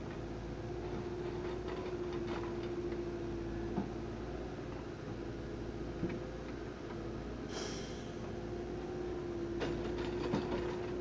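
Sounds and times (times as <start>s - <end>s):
crane engine humming: 0.0s - 11.0s
short hiss: 7.5s - 8.2s.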